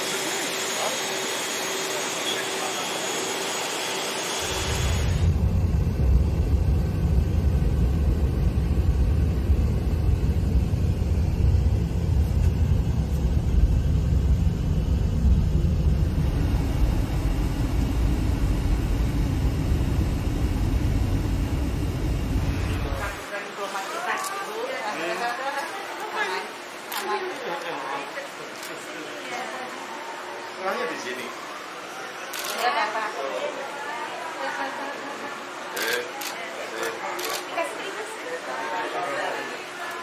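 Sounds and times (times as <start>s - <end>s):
thin constant whine: 0.0s - 40.0s
car cabin low rumble: 5.3s - 23.2s.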